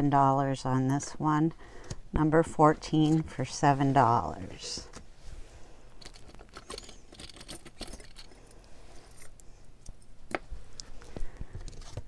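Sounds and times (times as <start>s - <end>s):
metal brooches clicking and clinking: 6.0s - 8.6s.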